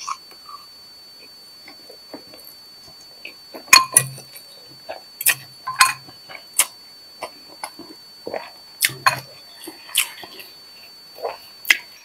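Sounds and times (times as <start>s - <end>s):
wet chewing and mouth clicks: 3.2s - 10.6s.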